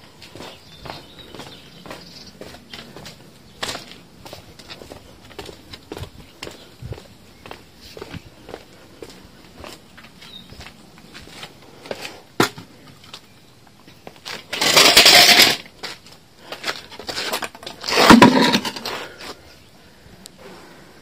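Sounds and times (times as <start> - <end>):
stool scraping on stone slabs: 17.0 - 19.2.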